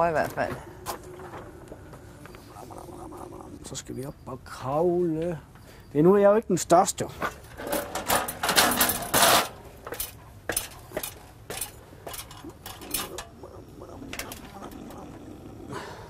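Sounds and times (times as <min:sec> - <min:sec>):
metal stepladder clanking: 0:07.5 - 0:13.3.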